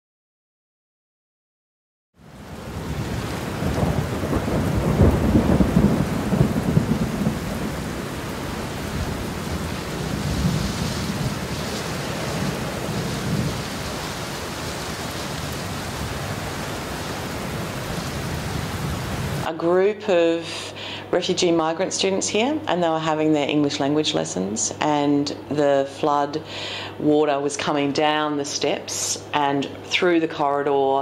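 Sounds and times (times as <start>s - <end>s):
heavy rain: 2.2s - 19.5s, 26.4s - 27.0s
rushing floodwater: 2.3s - 19.5s.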